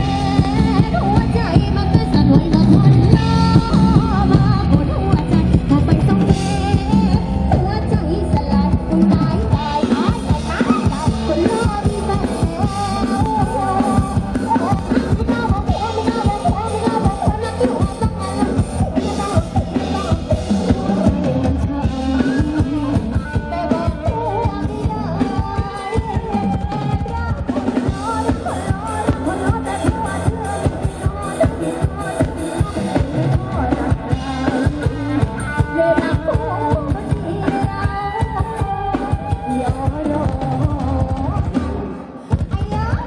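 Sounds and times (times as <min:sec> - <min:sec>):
drum kit: 0:00.0 - 0:43.0
keyboard: 0:00.0 - 0:43.0
woman singing into microphone: 0:00.0 - 0:43.0.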